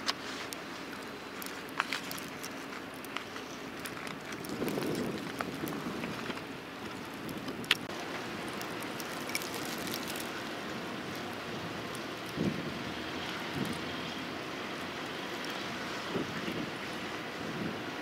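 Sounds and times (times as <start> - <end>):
steady storm hiss: 0.0 - 18.0
low rumbles: 0.8 - 14.2.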